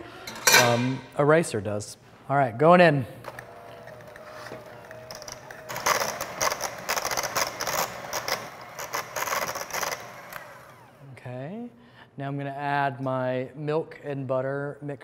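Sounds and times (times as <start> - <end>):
beaters churning potatoes: 3.3 - 11.0
electric hand mixer motor whine: 3.3 - 11.0.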